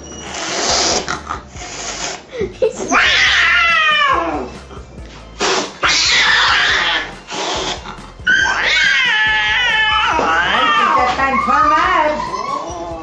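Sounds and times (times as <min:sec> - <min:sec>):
cat hissing: 0:00.3 - 0:04.5, 0:05.4 - 0:12.6
cat yowling: 0:02.9 - 0:04.5, 0:05.8 - 0:07.1, 0:08.3 - 0:13.0.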